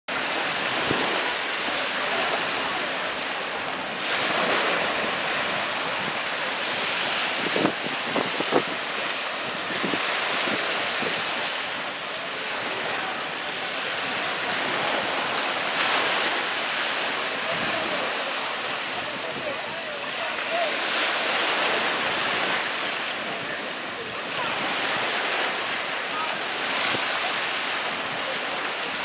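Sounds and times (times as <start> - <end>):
surf washing onto beach: 0.1 - 29.0
wind buffeting microphone: 3.5 - 20.0.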